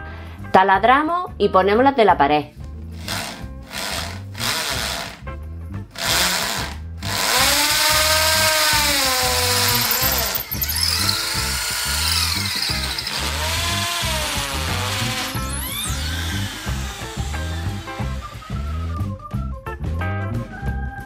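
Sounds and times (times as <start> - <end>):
electric drill boring into wall: 3.0 - 5.2, 6.0 - 19.1
music with steady beat: 13.4 - 21.0.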